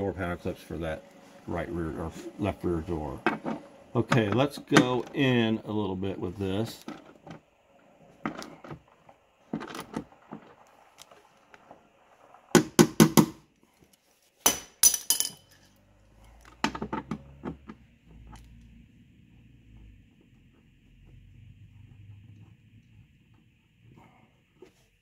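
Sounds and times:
wrench clinking on metal: 0:14.8 - 0:15.7.

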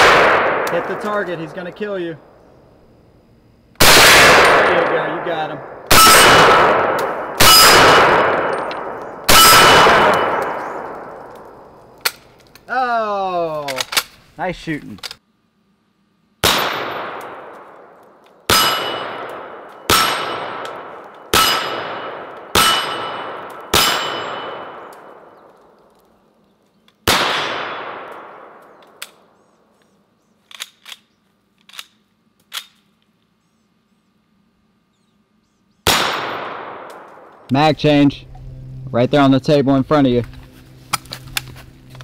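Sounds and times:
rifle shots: 0:00.0 - 0:01.6, 0:03.8 - 0:12.2, 0:16.4 - 0:25.4, 0:27.0 - 0:29.3, 0:35.8 - 0:37.5
metallic ring of steel targets: 0:05.9 - 0:11.0, 0:18.5 - 0:24.9.

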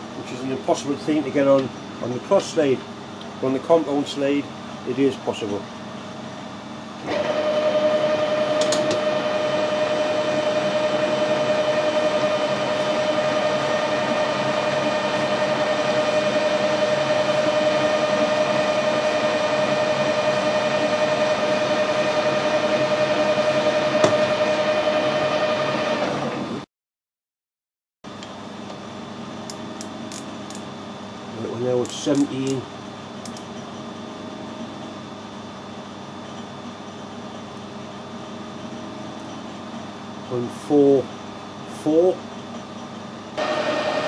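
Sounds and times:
metal lathe whining: 0:07.1 - 0:26.2, 0:43.4 - 0:44.0.

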